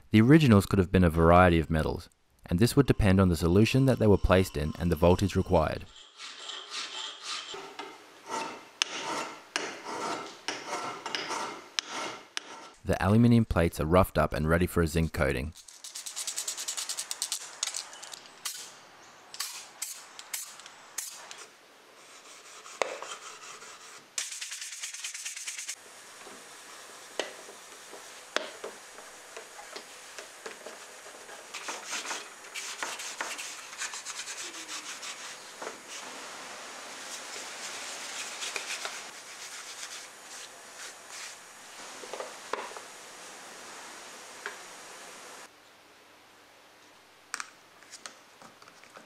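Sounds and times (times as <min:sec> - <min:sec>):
abrasive paper rubbing metal plate: 0:30.6 - 0:36.1.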